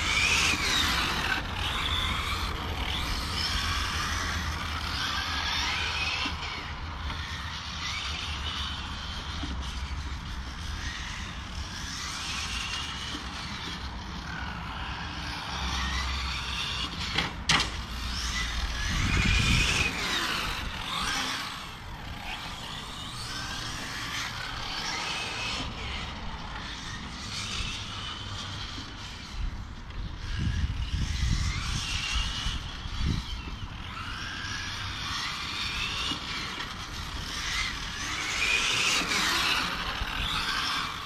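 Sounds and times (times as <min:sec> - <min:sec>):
rc car motors whining: 0:00.0 - 0:41.0
wind rumble on microphone: 0:17.8 - 0:38.7.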